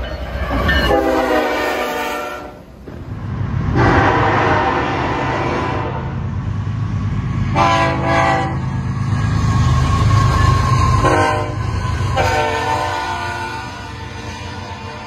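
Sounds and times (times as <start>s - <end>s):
locomotive engines rumbling: 0.0s - 15.0s
locomotive air horn blasts: 0.9s - 2.6s, 3.8s - 6.2s, 7.5s - 8.7s, 11.0s - 15.0s.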